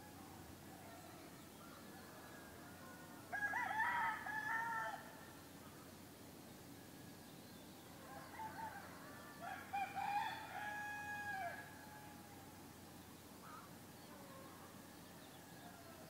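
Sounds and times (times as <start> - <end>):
low background noise: 0.0 - 16.0
rooster crowing: 2.4 - 5.1, 8.0 - 12.2.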